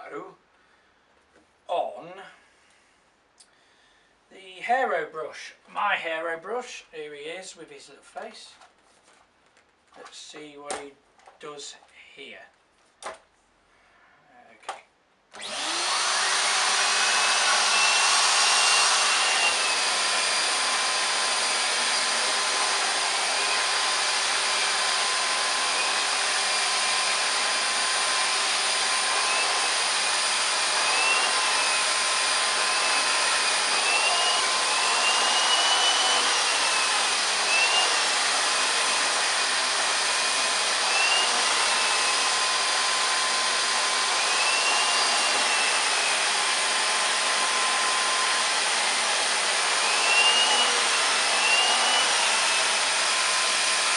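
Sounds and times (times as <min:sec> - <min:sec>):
vacuum cleaner motor running: 0:15.4 - 0:53.9.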